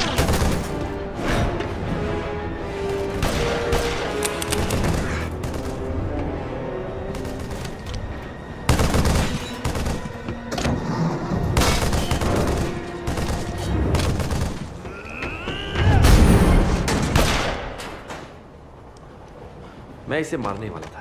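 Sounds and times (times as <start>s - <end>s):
dramatic film music: 0.0s - 21.0s
rapid gunfire: 8.7s - 10.1s, 11.6s - 14.7s.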